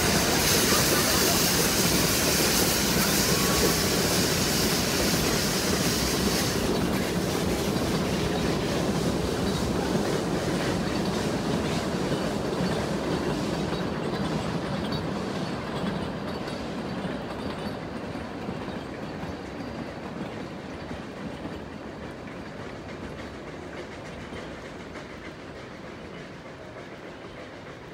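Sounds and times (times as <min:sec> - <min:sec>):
steam train clattering over bridge: 0:00.0 - 0:27.9.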